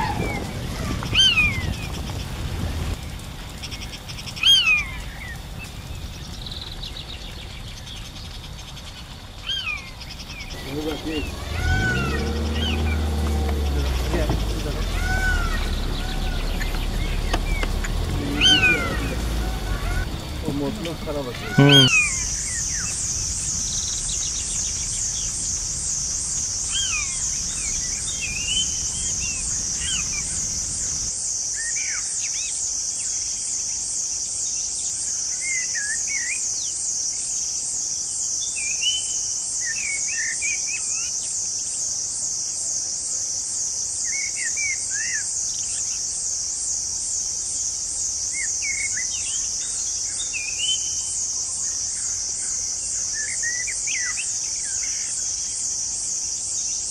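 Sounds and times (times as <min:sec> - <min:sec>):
shrill insect chorus: 0:00.0 - 0:56.9
low rumble: 0:05.0 - 0:31.1
bird chirps and calls: 0:06.1 - 0:31.0, 0:48.3 - 0:55.6.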